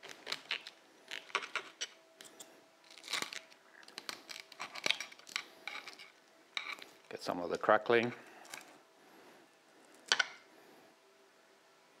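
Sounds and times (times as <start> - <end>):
knife crunching through crackling: 0.0 - 6.9.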